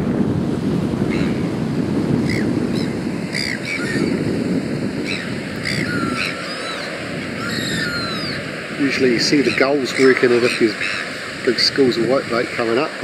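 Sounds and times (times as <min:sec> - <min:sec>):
wind on microphone: 0:00.0 - 0:13.0
gulls calling: 0:01.1 - 0:13.0
river water running over rocks: 0:04.8 - 0:13.0.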